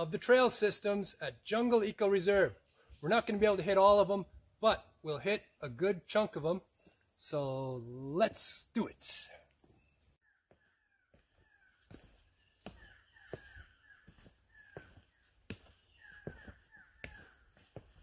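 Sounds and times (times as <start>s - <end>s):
footsteps on dirt trail: 10.5s - 18.0s.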